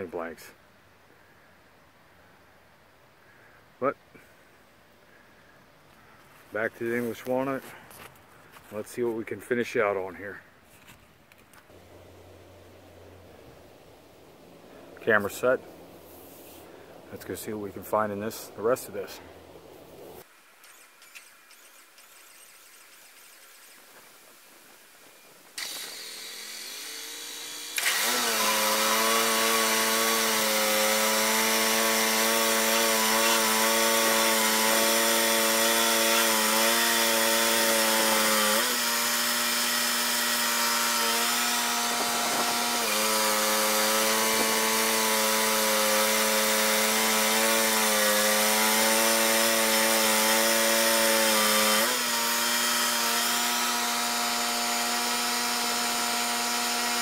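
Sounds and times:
band sawmill cutting log: 0:19.8 - 0:57.0.

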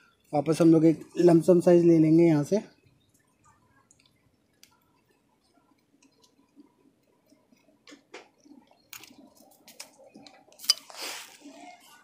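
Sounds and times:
faint clicks: 0:03.1 - 0:05.1.

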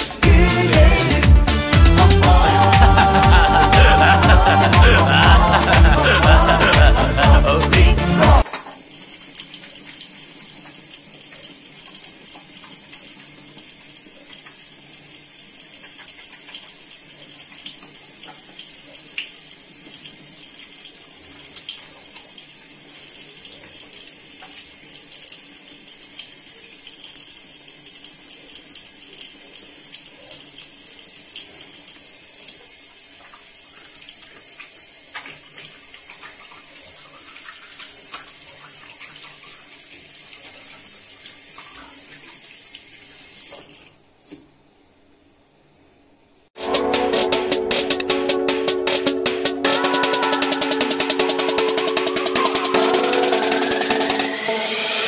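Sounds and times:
tap water running into sink: 0:08.4 - 0:44.5.

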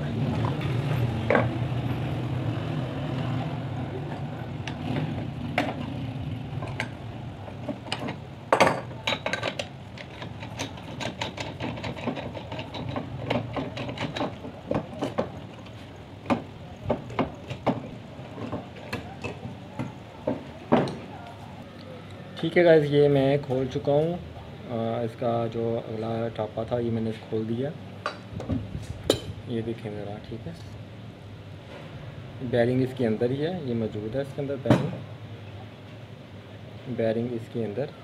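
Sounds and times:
hand tools clicking on metal: 0:08.9 - 0:20.0.

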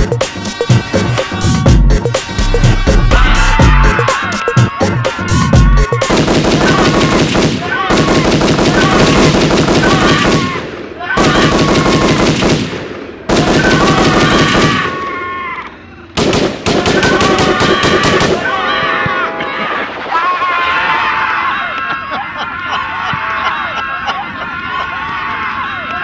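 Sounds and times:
machine-gun fire: 0:06.0 - 0:15.0, 0:16.2 - 0:18.4.

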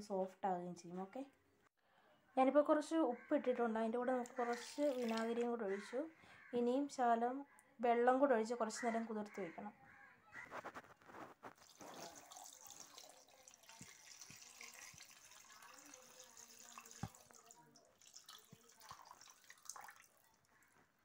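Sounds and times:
water pouring into a metal bowl: 0:04.2 - 0:05.6, 0:11.5 - 0:20.4.

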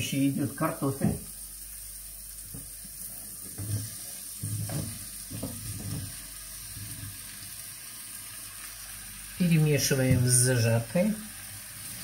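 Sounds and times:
vegetables sizzling in pot: 0:00.0 - 0:12.0
potato pieces tumbling into pot: 0:02.4 - 0:07.4.

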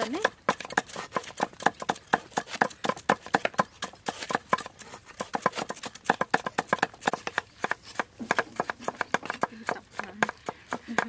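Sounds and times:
cleaver chopping on wooden board: 0:00.0 - 0:11.0.

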